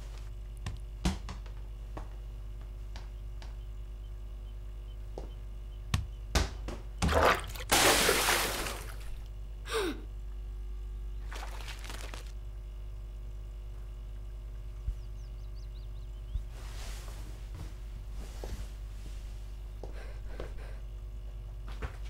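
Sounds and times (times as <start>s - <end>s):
steady low hum: 0.0s - 22.0s
football thumping on tiled floor: 0.6s - 2.2s, 5.9s - 7.2s
water and gravel splashing: 7.0s - 9.2s, 11.2s - 12.4s
glass bowl smashing on tiles: 7.1s - 9.1s.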